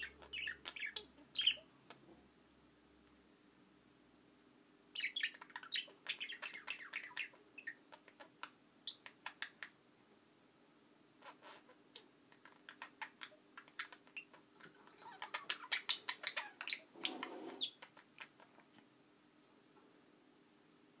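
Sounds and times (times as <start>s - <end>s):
budgerigars chirping and chattering: 0.0s - 2.0s, 5.0s - 9.8s, 11.2s - 18.8s.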